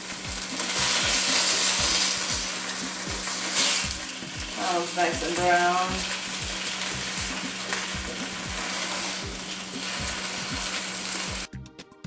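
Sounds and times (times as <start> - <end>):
chicken sizzling in oil: 0.0 - 11.5.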